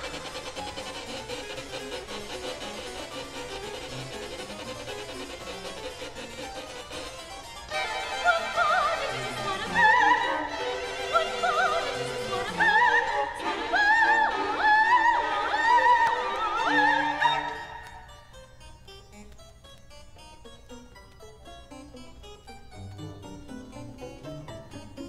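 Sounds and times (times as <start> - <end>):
string quartet: 0.0 - 18.0
harpsichord: 0.0 - 25.0
soprano singing: 7.7 - 18.1.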